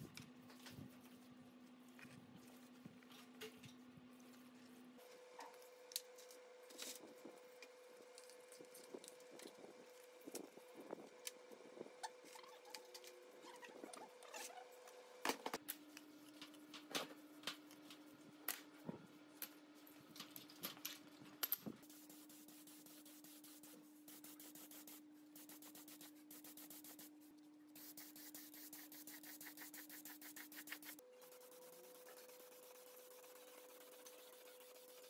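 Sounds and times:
air spray gun hissing: 0:27.8 - 0:35.0.

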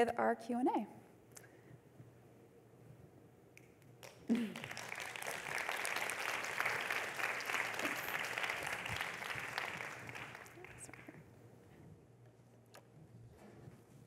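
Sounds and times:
audience applauding: 0:04.0 - 0:11.2.

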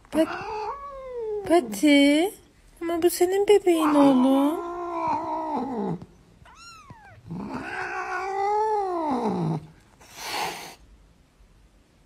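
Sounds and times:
cat meowing: 0:00.2 - 0:01.5, 0:03.8 - 0:09.5.

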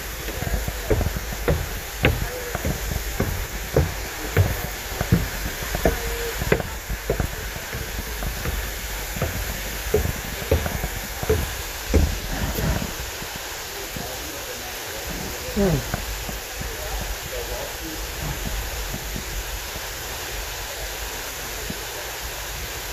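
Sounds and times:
footsteps on a trail: 0:00.0 - 0:13.3, 0:15.4 - 0:17.3.

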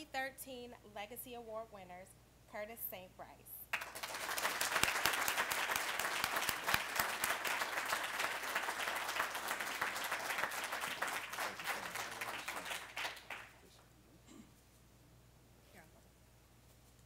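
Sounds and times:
audience applauding: 0:03.7 - 0:13.7.

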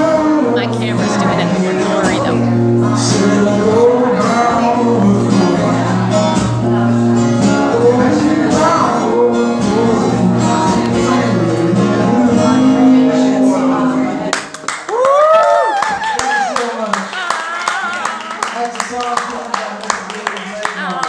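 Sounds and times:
man singing: 0:00.0 - 0:14.3
acoustic guitar strumming: 0:00.0 - 0:14.4.

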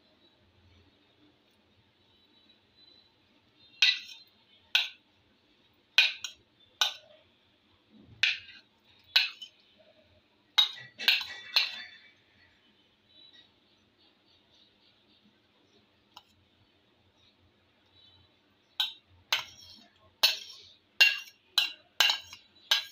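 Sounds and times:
metal spoon clinking on plate: 0:03.6 - 0:05.0, 0:06.0 - 0:07.2, 0:08.2 - 0:10.0, 0:10.6 - 0:12.2, 0:18.0 - 0:22.9.

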